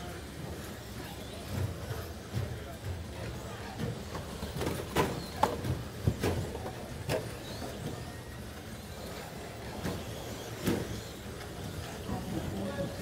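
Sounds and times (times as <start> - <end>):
rc truck motor and tyre whir: 0.0 - 2.3, 3.9 - 13.0.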